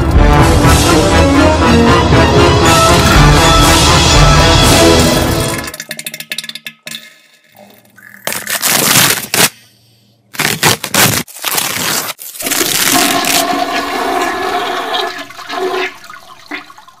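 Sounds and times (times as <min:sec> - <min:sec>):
toilet flushing: 0:02.6 - 0:06.1, 0:12.6 - 0:17.0.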